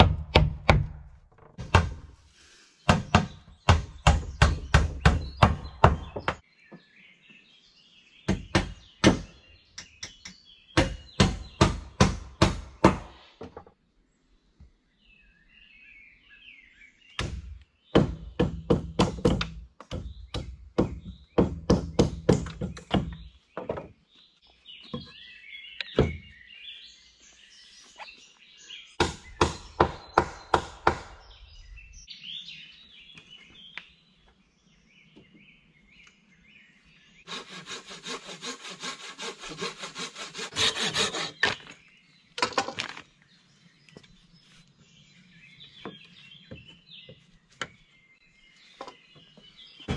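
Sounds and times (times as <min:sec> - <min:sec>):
faint birds chirping: 0:00.0 - 0:49.9
hand saw strokes: 0:37.3 - 0:41.6
sharp blows on wood: 0:37.3 - 0:41.6.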